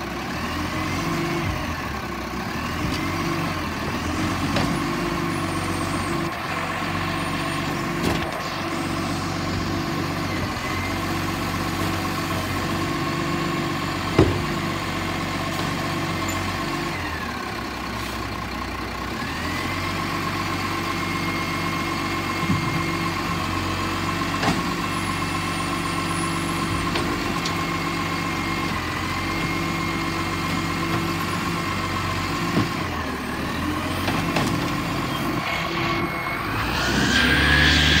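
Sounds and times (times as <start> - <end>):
truck engine idling: 0.0 - 38.0
high whine: 35.4 - 38.0.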